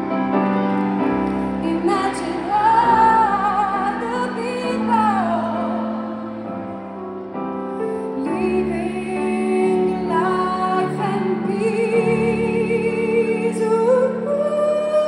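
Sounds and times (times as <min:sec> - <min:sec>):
soft instrumental accompaniment: 0:00.0 - 0:15.0
woman singing a slow ballad: 0:01.4 - 0:06.1, 0:08.1 - 0:15.0.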